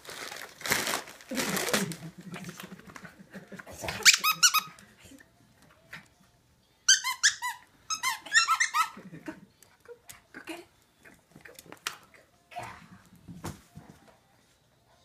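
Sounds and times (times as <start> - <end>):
dog toy squeaking: 4.0 - 4.7, 6.9 - 9.0.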